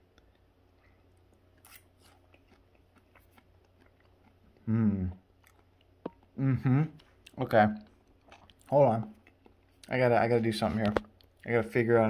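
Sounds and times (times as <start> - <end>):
person chewing quietly: 0.0 - 11.6
short vocal sound: 4.6 - 5.2.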